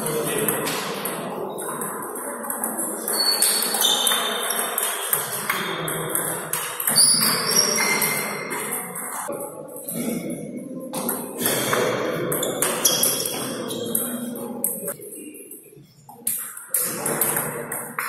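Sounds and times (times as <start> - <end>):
table tennis balls clicking: 0.4 - 10.0, 16.1 - 18.0
shoes squeaking on floor: 3.0 - 5.2, 6.9 - 9.0, 12.4 - 14.4.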